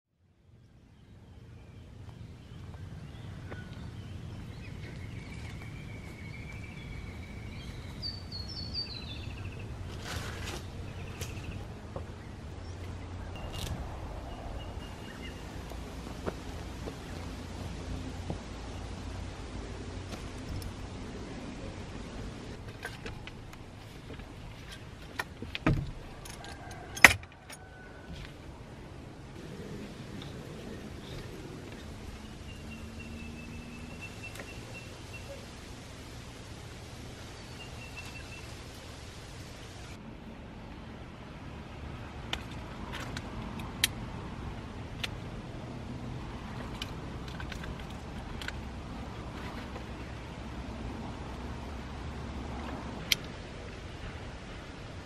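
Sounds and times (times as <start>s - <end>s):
low outdoor rumble: 0.2s - 55.0s
birds calling: 0.6s - 17.8s, 29.3s - 40.0s
dull thump: 25.4s - 26.0s.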